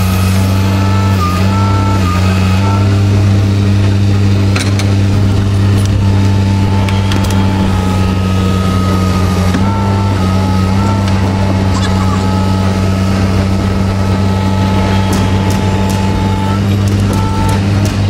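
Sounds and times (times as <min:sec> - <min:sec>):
lifting machine engine running: 0:00.0 - 0:18.0
thin whine: 0:00.0 - 0:18.0.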